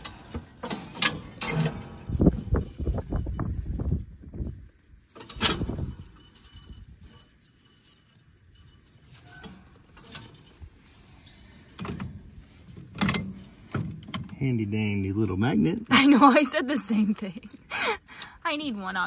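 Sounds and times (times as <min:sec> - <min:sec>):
metal clanks and clicks: 0:00.0 - 0:02.8, 0:05.2 - 0:10.6, 0:11.7 - 0:14.4
twine and straw scraping: 0:00.0 - 0:17.5.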